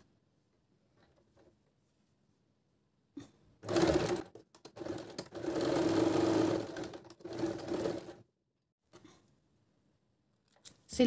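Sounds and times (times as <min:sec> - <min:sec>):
sewing machine stitching: 0:03.6 - 0:08.3.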